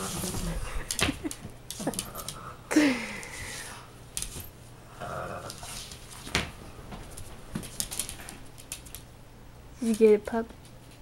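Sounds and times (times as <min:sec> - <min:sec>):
dogs scuffling over a toy: 0:00.0 - 0:02.0.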